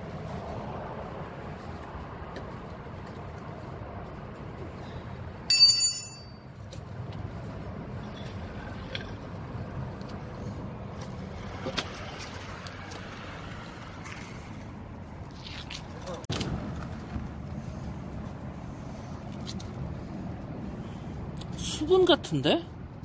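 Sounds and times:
vehicle engine rumbling: 0.0s - 22.1s.

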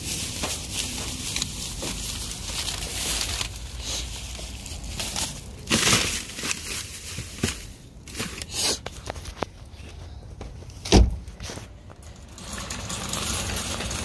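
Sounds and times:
plastic bags rustling: 0.0s - 10.0s.

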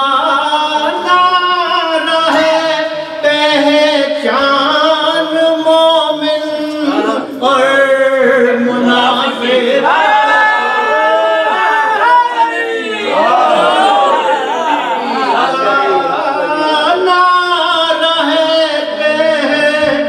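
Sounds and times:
man singing unaccompanied: 0.0s - 9.9s, 15.4s - 20.0s.

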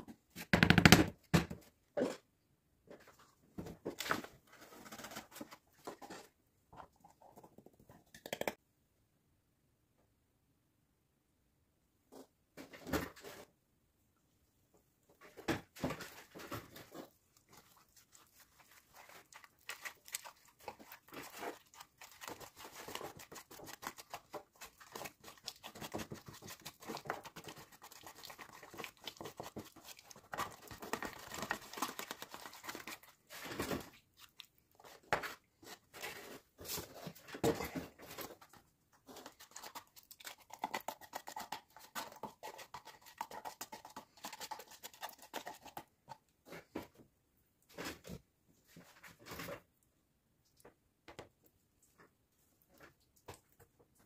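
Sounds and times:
scraping and crinkling of materials: 2.9s - 7.6s, 15.1s - 40.8s, 45.8s - 50.8s.

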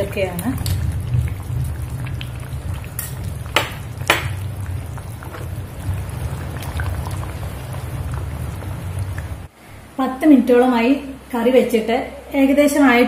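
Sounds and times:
curry bubbling in a pot: 0.0s - 9.5s
gas burner low rumble: 0.0s - 11.8s
spatula knocking against pot: 3.5s - 4.4s.

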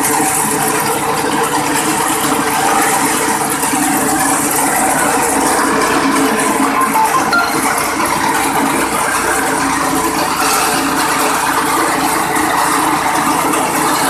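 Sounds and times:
petrol engine running: 0.1s - 7.1s.

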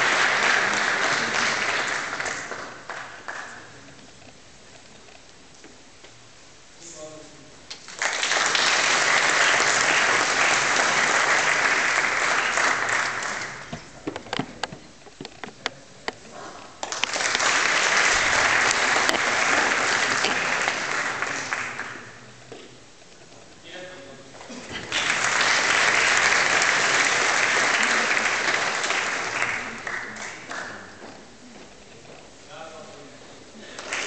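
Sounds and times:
audience applauding: 0.0s - 3.8s, 7.8s - 13.8s, 16.8s - 22.2s, 24.7s - 31.1s, 33.6s - 34.0s
scattered claps: 0.0s - 3.8s, 7.7s - 16.2s, 16.8s - 22.1s, 24.7s - 31.1s.

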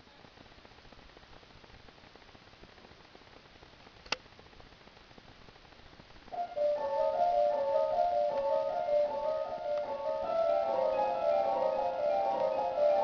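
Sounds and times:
sharp click: 4.0s - 4.2s
chamber music with sustained notes: 6.4s - 13.0s.

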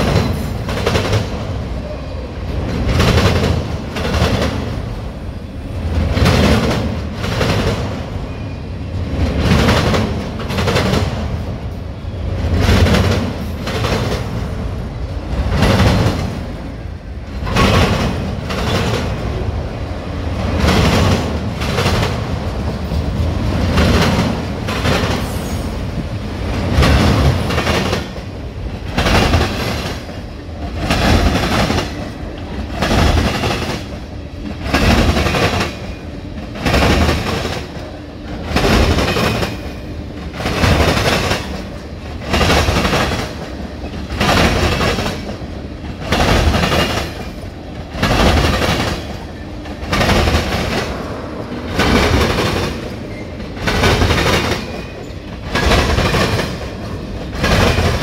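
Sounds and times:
steel wheels rumbling on rail: 0.0s - 58.0s
wheels clacking over rail joints: 26.5s - 58.0s.

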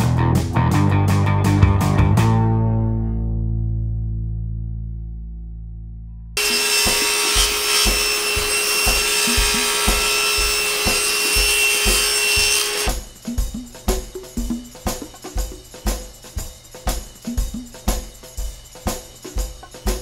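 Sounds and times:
table saw ripping wood: 6.4s - 12.9s
drum beat: 6.4s - 20.0s.

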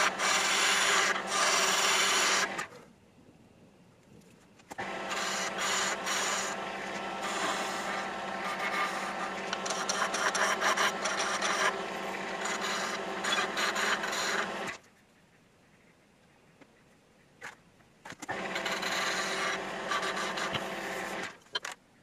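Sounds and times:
lathe motor hum: 0.0s - 2.7s, 4.8s - 14.8s, 18.3s - 21.4s
chisel scraping wood: 5.0s - 14.8s, 18.3s - 21.3s.

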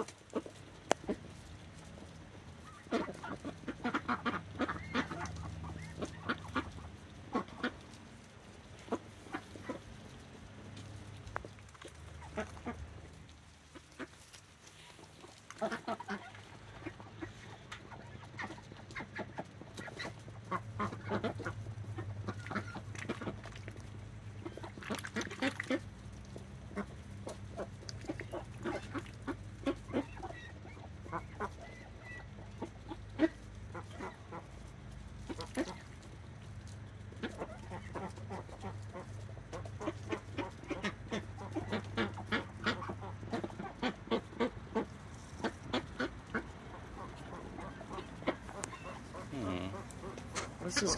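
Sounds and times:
ducks dabbling with bills: 0.0s - 50.9s
low duck calls: 45.4s - 50.9s.

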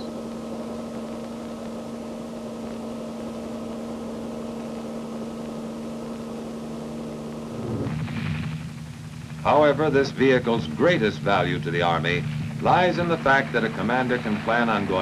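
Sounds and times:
helicopter engine drone: 0.0s - 15.0s
low tone: 7.4s - 10.9s.

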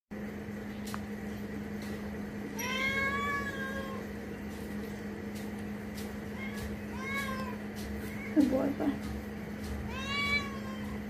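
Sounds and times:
steady low hum: 0.1s - 11.0s
cat meowing: 2.6s - 4.1s, 6.3s - 8.5s, 9.8s - 11.0s.

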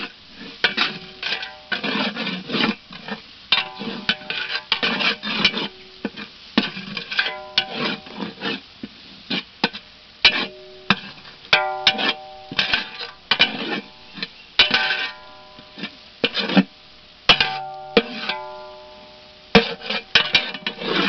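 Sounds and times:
wooden ladle scraping metal pot: 0.0s - 21.0s
ladle knocking on ringing pot: 10.4s - 13.5s, 17.3s - 20.8s.

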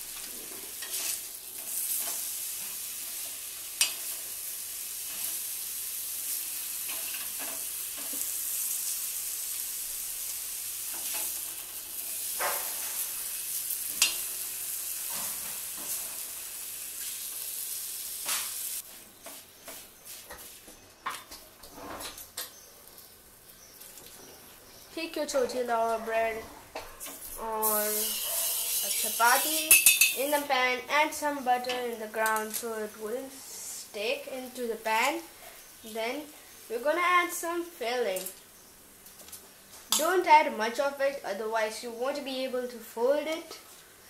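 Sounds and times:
cheese sizzling in a pan: 0.0s - 18.9s, 27.1s - 30.7s.

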